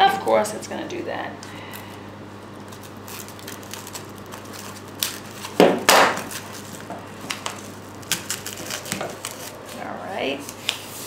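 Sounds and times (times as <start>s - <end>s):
duct tape ripping off roll: 2.6s - 9.6s.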